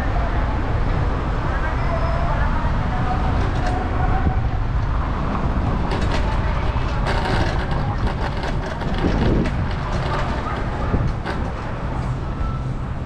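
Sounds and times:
wind and road noise: 0:00.0 - 0:13.0
quick clicks and rattles: 0:05.7 - 0:12.1.

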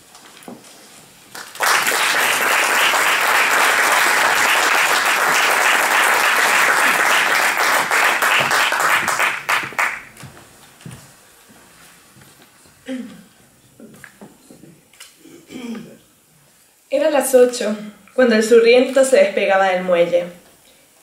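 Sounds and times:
audience applauding: 0:01.3 - 0:10.2.

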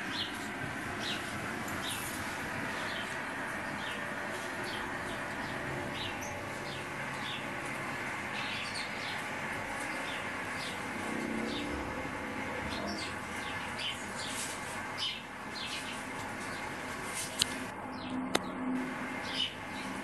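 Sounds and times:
sparrows chirping through tv speakers: 0:00.0 - 0:20.0.

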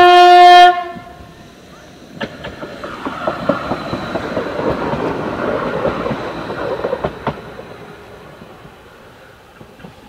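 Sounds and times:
tram wheels rumbling on rail: 0:00.0 - 0:10.0
sharp rail clacks: 0:02.2 - 0:08.8.

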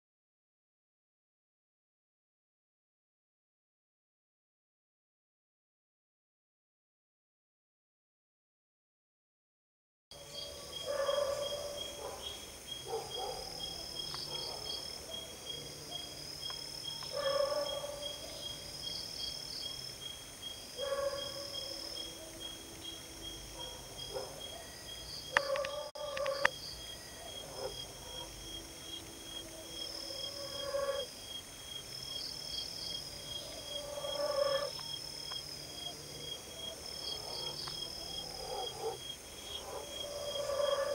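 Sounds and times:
cricket pulsing trill: 0:10.1 - 0:40.9
insect chirps and calls: 0:10.2 - 0:40.9.

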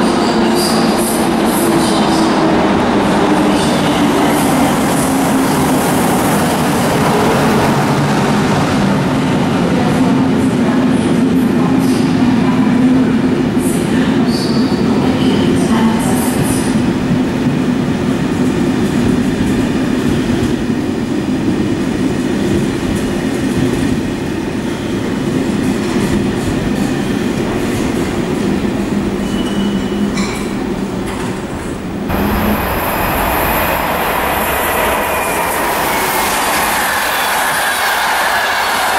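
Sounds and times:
train wheels rumbling on rails: 0:00.0 - 0:38.9
high wheel squeals: 0:29.2 - 0:30.1.

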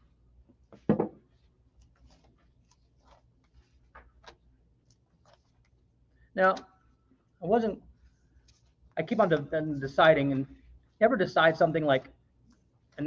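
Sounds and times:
man's voice: 0:09.0 - 0:12.1.

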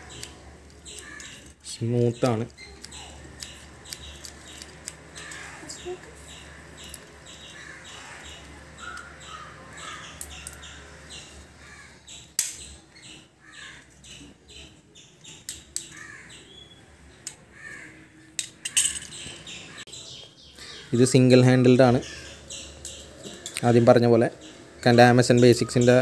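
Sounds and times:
birds calling: 0:00.0 - 0:26.0
sharp click: 0:12.4 - 0:12.7.

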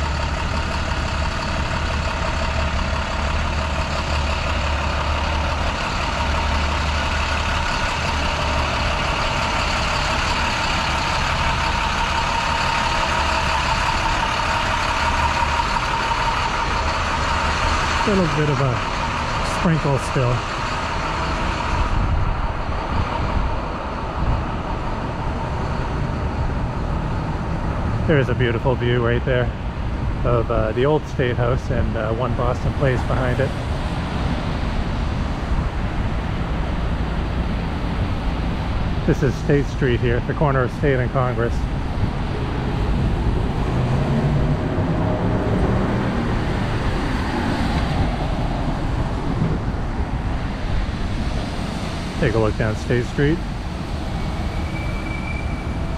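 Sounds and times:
car engines running: 0:00.0 - 0:55.9
city traffic rumble and hiss: 0:00.0 - 0:55.9
tyres hissing on wet road: 0:50.2 - 0:55.9.

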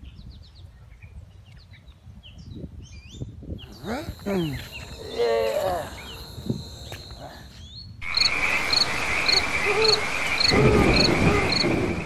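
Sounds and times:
frogs croaking in chorus: 0:03.6 - 0:12.0
steady high buzz: 0:03.6 - 0:12.0.

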